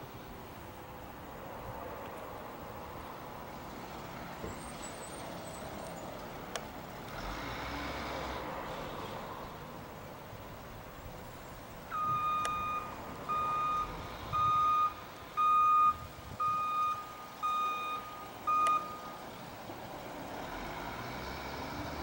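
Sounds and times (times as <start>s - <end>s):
truck engine and road noise: 0.0s - 22.0s
truck backup alarm beeping: 11.9s - 19.4s.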